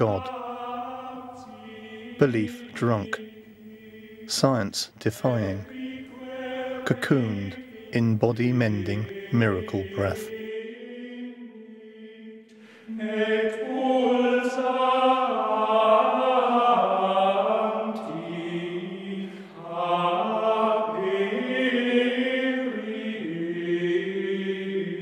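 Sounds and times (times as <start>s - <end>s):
chanting voices in soundtrack music: 0.0s - 25.0s.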